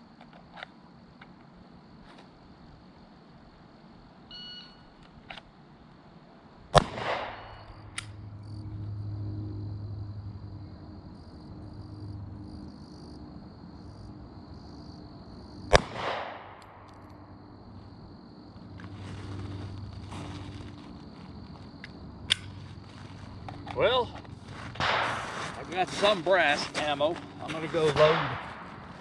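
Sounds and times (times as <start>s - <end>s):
pistol shots with echo: 6.7s - 7.7s, 15.7s - 16.9s, 24.8s - 25.3s, 28.0s - 28.9s.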